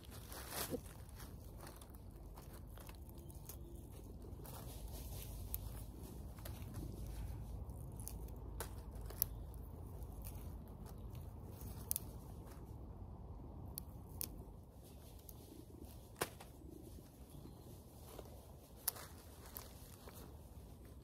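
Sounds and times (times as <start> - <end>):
plants snapping and crackling: 0.0 - 16.7
low steady rumble: 0.0 - 21.0.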